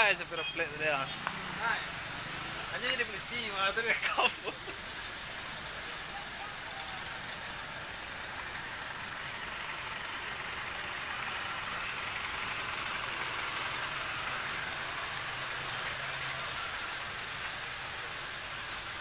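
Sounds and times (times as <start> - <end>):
traffic engines running: 0.0 - 19.0
low engine hum: 4.5 - 19.0.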